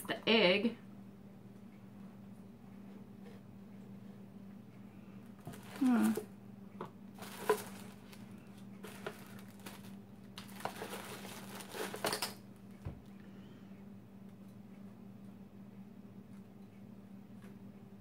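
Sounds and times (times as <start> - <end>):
steady low hum: 0.0 - 18.0
packaging crinkling and rustling: 5.4 - 6.3, 7.1 - 12.4.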